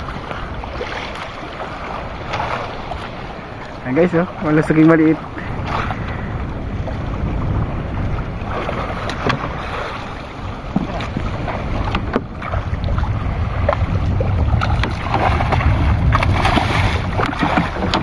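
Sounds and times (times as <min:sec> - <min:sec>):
water washing against boat: 0:00.0 - 0:18.0
wind buffeting microphone: 0:00.0 - 0:18.0
sharp knocks and clicks: 0:17.2 - 0:18.0.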